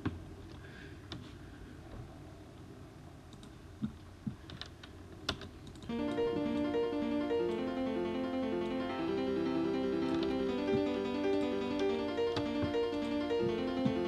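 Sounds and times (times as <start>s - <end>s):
piano arpeggio: 5.9s - 14.0s.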